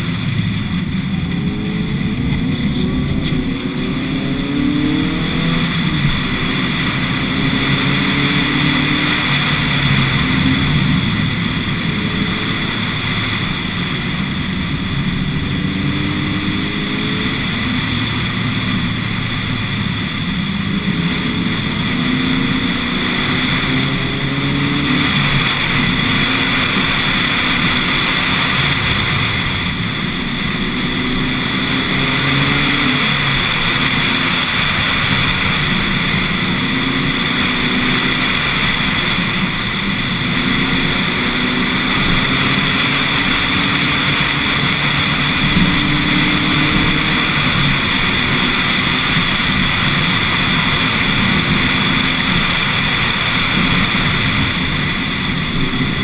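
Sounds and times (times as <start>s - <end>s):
car engine accelerating: 0.0s - 56.0s
wind and road noise: 0.0s - 56.0s.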